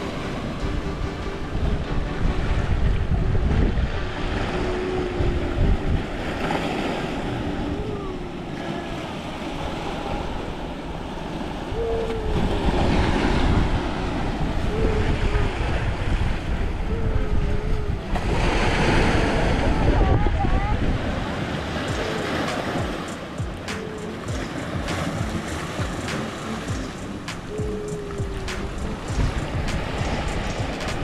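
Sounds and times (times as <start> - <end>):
faint wavering tone: 0.0 - 11.0, 11.6 - 18.1, 21.8 - 30.8
wind buffeting microphone: 0.0 - 31.0
steady rushing noise: 19.0 - 31.0.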